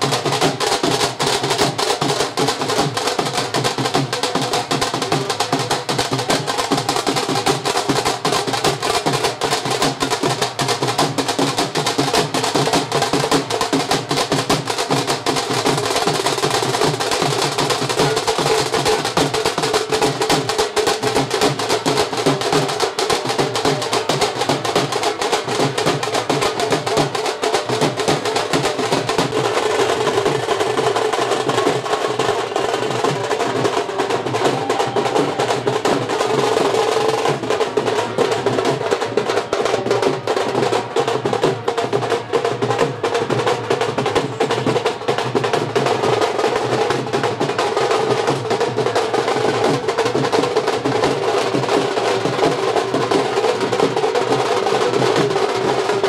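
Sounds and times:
dense drumming: 0:00.0 - 0:39.1.

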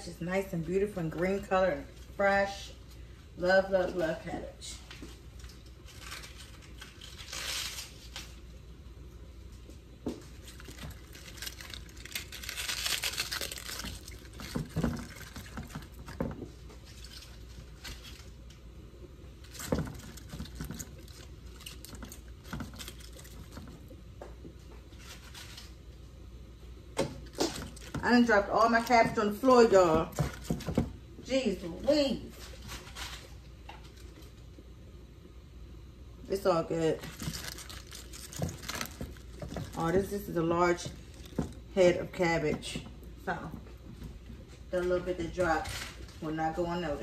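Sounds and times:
cabbage leaves tearing: 0:05.8 - 0:08.4, 0:10.3 - 0:16.1, 0:37.0 - 0:40.4.

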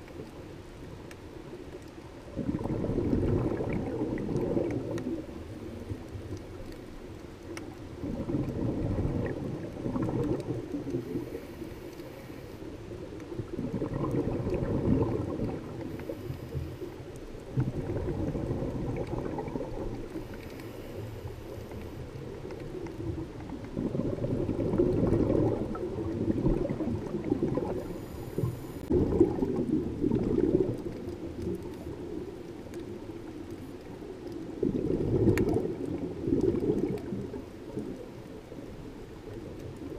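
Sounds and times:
regulator exhaust bubbling underwater: 0:02.3 - 0:06.5, 0:07.9 - 0:11.4, 0:13.3 - 0:16.3, 0:17.4 - 0:20.5, 0:23.0 - 0:33.3, 0:34.4 - 0:38.2
faint inhaling hiss: 0:10.9 - 0:13.1, 0:15.7 - 0:17.2, 0:20.0 - 0:22.2, 0:27.7 - 0:28.9.

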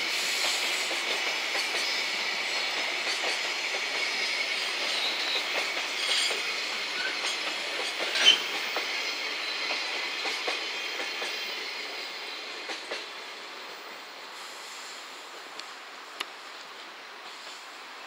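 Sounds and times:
train wheels on rails: 0:00.0 - 0:18.0
high-pitched wheel squeal: 0:08.1 - 0:08.5.

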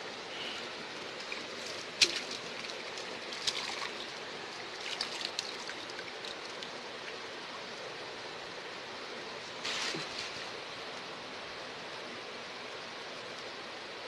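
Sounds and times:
river water rushing: 0:00.0 - 0:12.2
small water splashes: 0:00.5 - 0:07.2.

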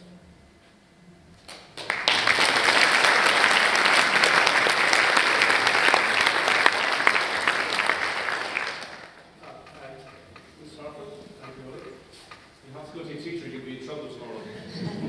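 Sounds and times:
audience applauding: 0:01.5 - 0:09.3.

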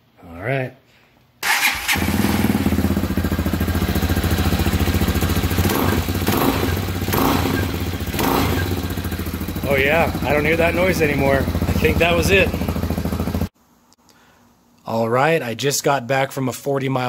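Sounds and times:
motorcycle engine starting and idling: 0:01.4 - 0:13.5.

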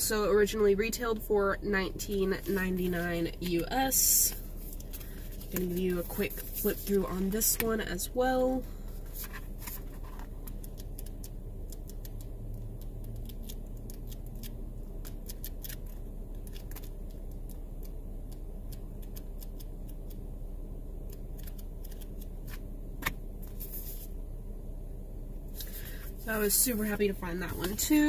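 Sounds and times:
low hum: 0:00.0 - 0:28.0
book pages flipping: 0:04.3 - 0:07.7, 0:08.9 - 0:20.2, 0:21.1 - 0:24.1, 0:27.4 - 0:28.0.

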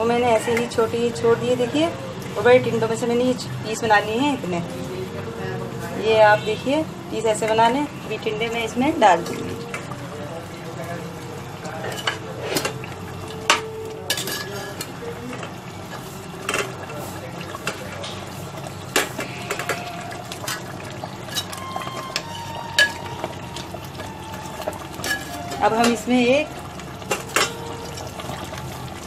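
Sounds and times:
metal spoon scraping pot: 0:11.8 - 0:12.8, 0:18.1 - 0:22.2.

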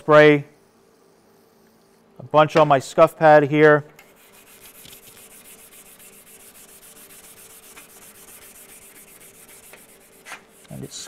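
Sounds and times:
scuff pad rubbing on steel: 0:04.0 - 0:11.0.

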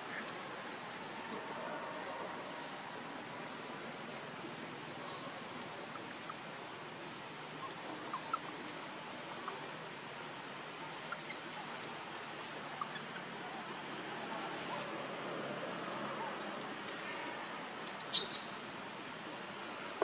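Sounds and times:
outdoor background hiss: 0:00.0 - 0:20.0
faint chirps: 0:18.0 - 0:18.7.

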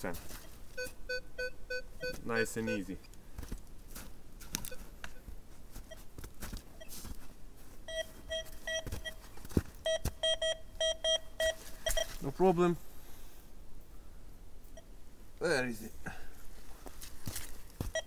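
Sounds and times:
soft footsteps: 0:00.0 - 0:00.8, 0:03.2 - 0:10.5, 0:11.4 - 0:12.3, 0:16.4 - 0:18.0
metal detector beeping: 0:00.8 - 0:02.9, 0:04.6 - 0:06.1, 0:07.9 - 0:12.2.

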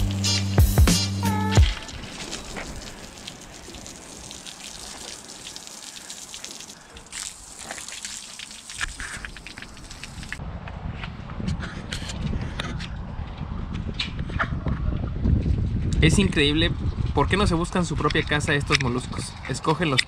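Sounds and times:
water gushing and trickling: 0:01.6 - 0:10.4.

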